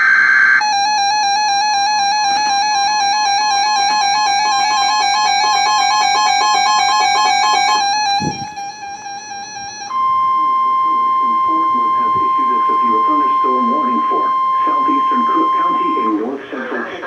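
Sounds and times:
two-pitch electronic alarm tone: 0.0s - 16.4s.

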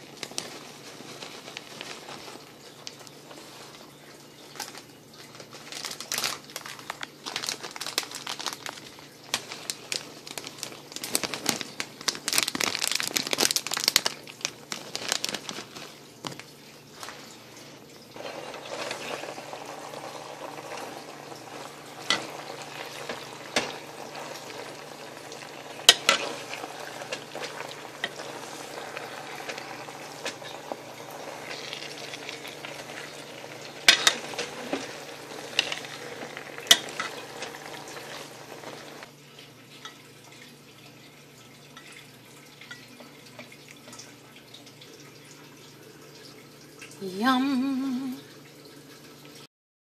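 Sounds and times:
pan sizzling: 0.0s - 39.2s.

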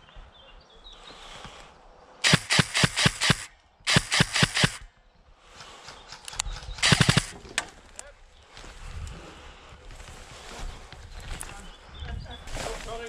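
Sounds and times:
airsoft gun firing: 2.2s - 4.9s, 6.6s - 7.4s.

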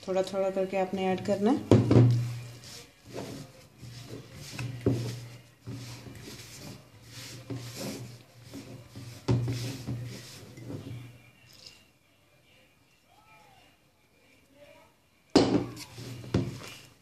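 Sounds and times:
hands squishing dough in a bowl: 0.0s - 11.2s, 15.4s - 17.0s
rubbing and rustling: 1.2s - 11.2s, 15.6s - 17.0s
bowl knocking on table: 1.6s - 2.4s.

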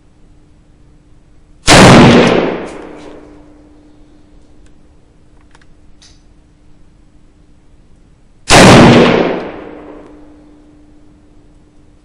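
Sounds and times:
rifle shot with echo: 1.6s - 3.5s, 8.5s - 10.4s.

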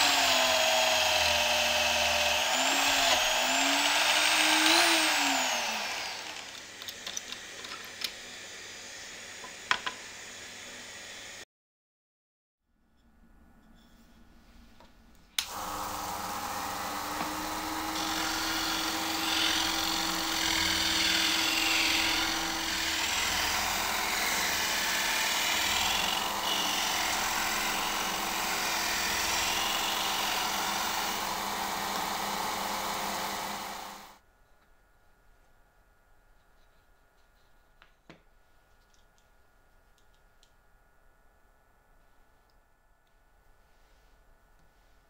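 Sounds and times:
sander motor hum: 0.0s - 11.4s, 15.4s - 34.2s.

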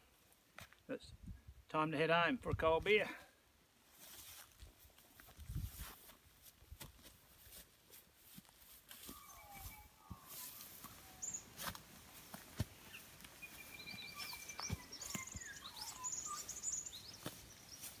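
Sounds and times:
rustling through long grass: 3.8s - 18.0s
footsteps: 3.9s - 18.0s
birds chirping and calling: 8.9s - 18.0s.

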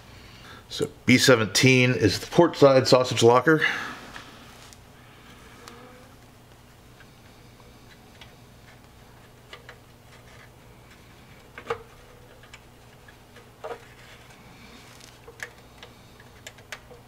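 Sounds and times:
plastic parts clicking: 15.1s - 17.0s.

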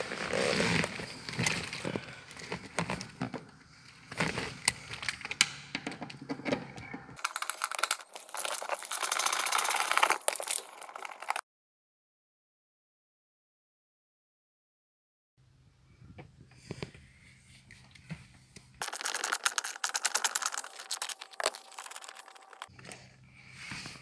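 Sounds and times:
hands handling plastic trim: 18.8s - 22.7s.

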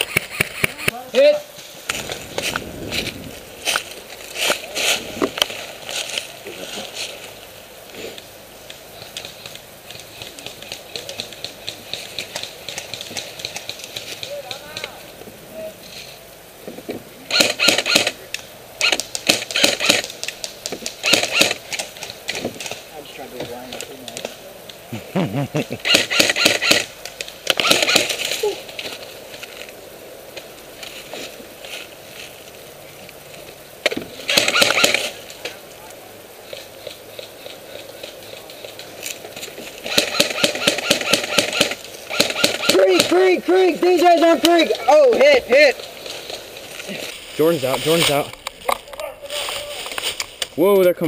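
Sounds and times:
airsoft gun firing bursts: 17.3s - 18.2s, 18.8s - 20.2s, 21.0s - 21.6s, 25.8s - 26.9s, 27.5s - 28.2s, 34.3s - 35.1s, 39.8s - 43.2s.

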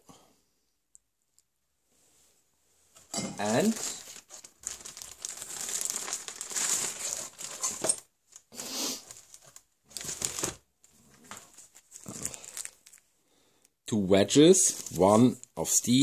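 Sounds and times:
plastic bag crinkling: 3.4s - 13.1s, 14.4s - 15.9s.

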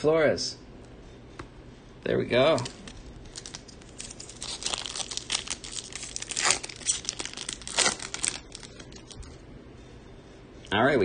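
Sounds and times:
foil wrapper crinkling and tearing: 2.5s - 9.3s.

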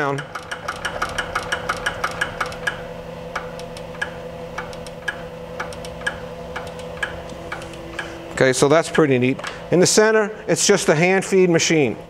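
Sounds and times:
grinder infeed clicking: 0.0s - 8.2s
machine motor hum: 0.0s - 12.0s.

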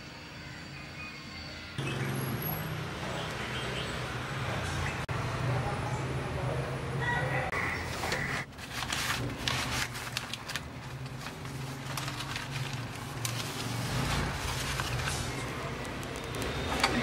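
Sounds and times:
paper rustling: 7.9s - 17.0s.

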